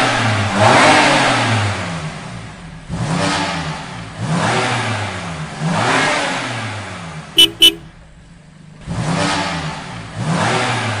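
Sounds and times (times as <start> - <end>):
horn beeps: 7.4 - 7.9.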